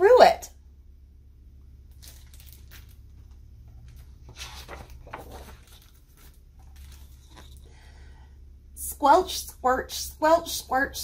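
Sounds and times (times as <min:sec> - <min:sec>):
paper page turning: 0:01.9 - 0:07.7.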